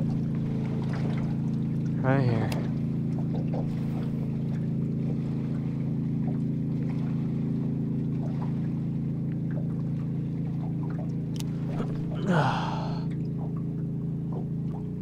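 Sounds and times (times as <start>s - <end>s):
boat motor humming: 0.0s - 15.0s.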